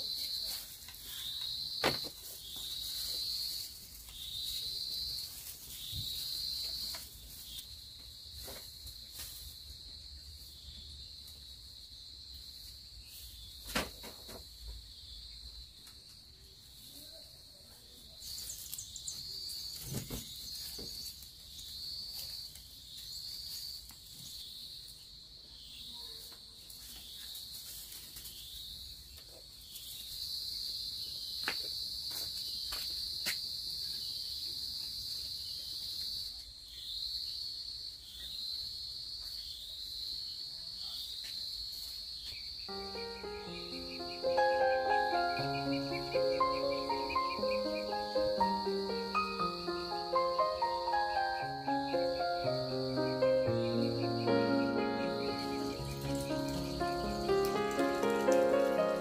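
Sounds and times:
high insect chorus: 0.0s - 59.0s.

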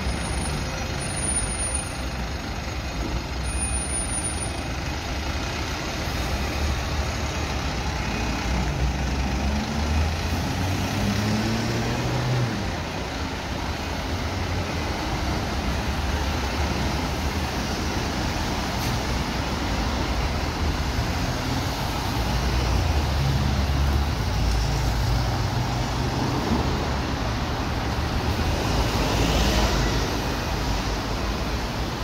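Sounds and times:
diesel engine rumbling: 0.0s - 32.0s.

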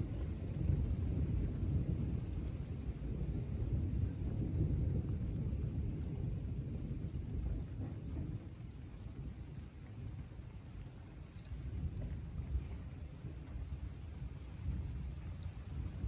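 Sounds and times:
light rain: 0.0s - 16.0s
low rolling thunder: 0.0s - 16.0s.

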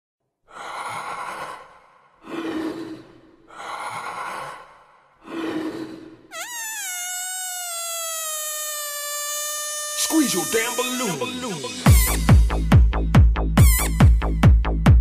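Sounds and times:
person breathing heavily: 0.5s - 6.3s
high wavering squeal: 6.3s - 12.0s.

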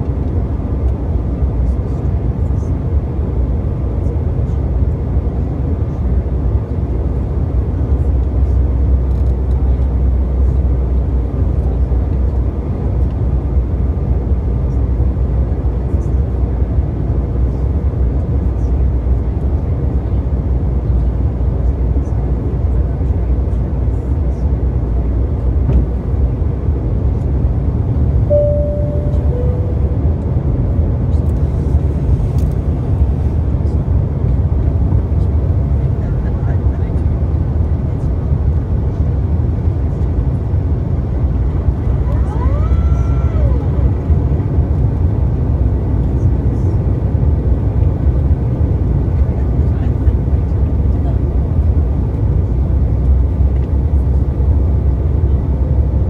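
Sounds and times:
jet engine and airflow rumble: 0.0s - 56.0s
brief tone dropping in pitch: 28.3s - 30.2s.

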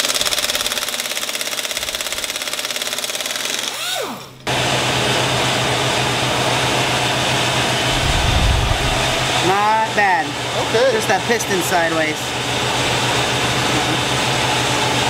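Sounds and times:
power tool buzzing: 0.0s - 5.0s
shop machinery rushing hum: 0.0s - 15.0s.

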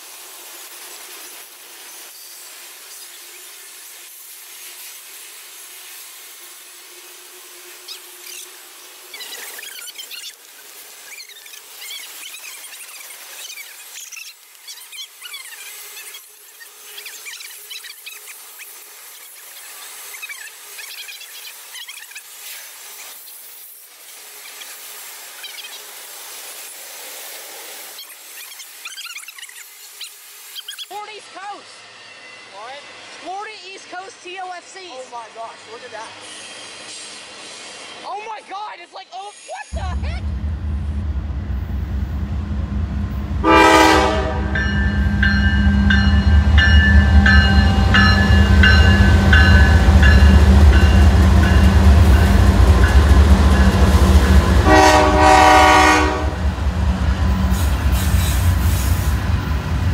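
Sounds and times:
freight train wheels rushing: 39.7s - 59.9s.

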